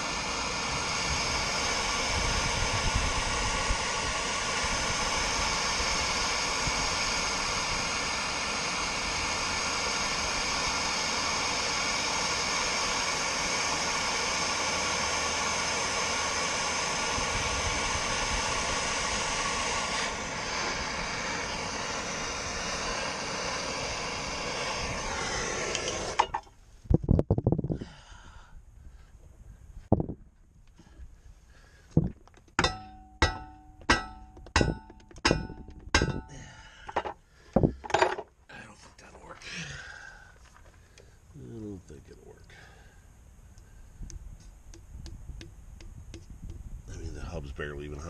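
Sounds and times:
gas torch hissing: 0:00.0 - 0:26.6
torch knocking when set down: 0:25.6 - 0:26.5, 0:36.9 - 0:38.3.

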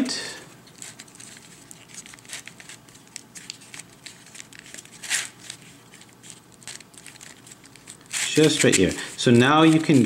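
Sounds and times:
plastic puzzle layer scraping: 0:04.1 - 0:10.0.

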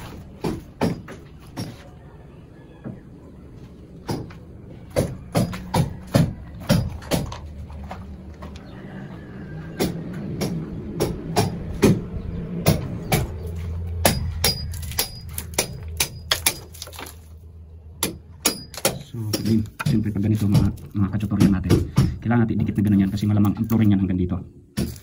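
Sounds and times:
steady low rumble: 0:02.3 - 0:19.3
sharp knocks and clacks: 0:04.1 - 0:07.8, 0:18.0 - 0:22.2.

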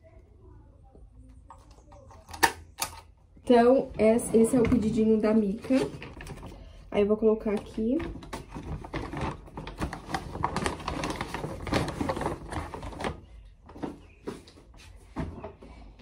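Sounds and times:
paper bag rustling: 0:08.1 - 0:14.4.

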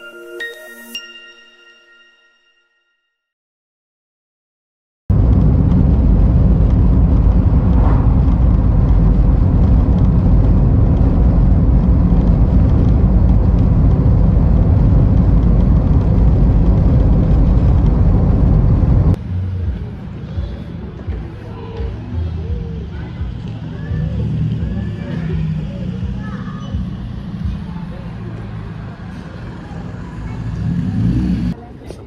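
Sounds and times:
car road and engine noise: 0:05.1 - 0:32.0
faint voices: 0:19.2 - 0:32.0.

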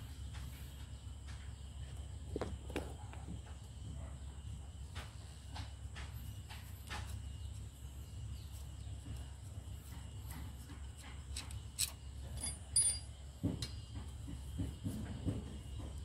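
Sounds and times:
light metal clicks and clinks: 0:10.9 - 0:13.8
ringing metal clink: 0:11.8 - 0:13.2.

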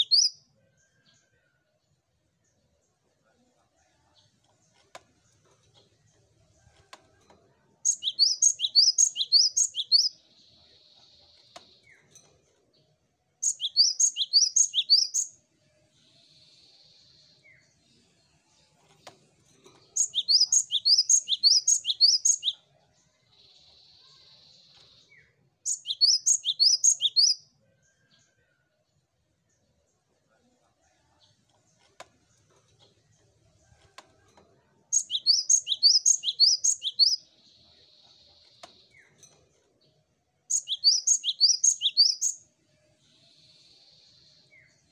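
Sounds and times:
bird singing ringing phrase: 0:34.9 - 0:37.2, 0:40.5 - 0:42.3.

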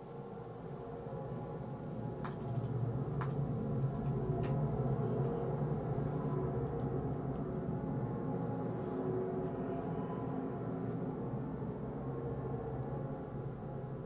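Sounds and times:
low humming drone: 0:00.0 - 0:14.0.

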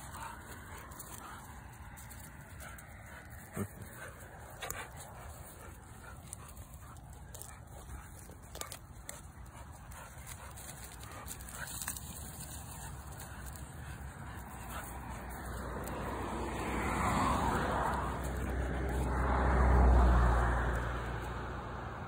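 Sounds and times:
sharp clicks and crackles: 0:00.0 - 0:16.0.

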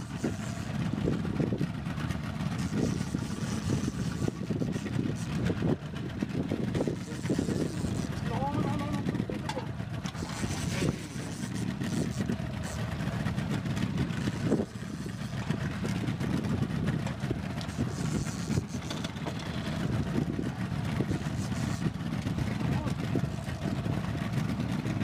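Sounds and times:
outboard motors running: 0:00.0 - 0:25.0.

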